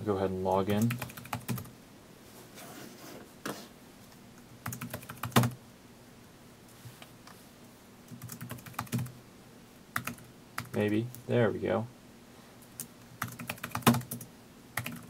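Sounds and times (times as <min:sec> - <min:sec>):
computer keyboard typing: 0:00.7 - 0:01.7, 0:04.6 - 0:05.6, 0:08.1 - 0:09.1, 0:10.0 - 0:10.9, 0:12.8 - 0:15.0.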